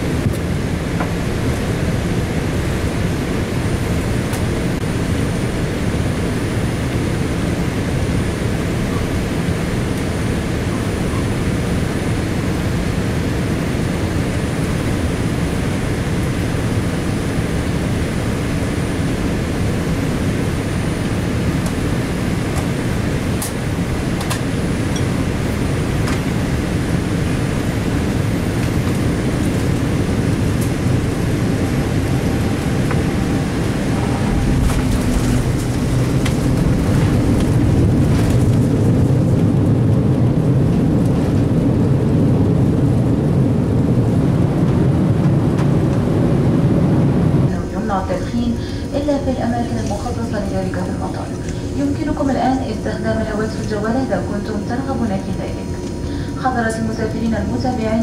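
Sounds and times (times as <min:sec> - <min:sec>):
jet engines and airflow rumble: 0:00.0 - 0:58.0.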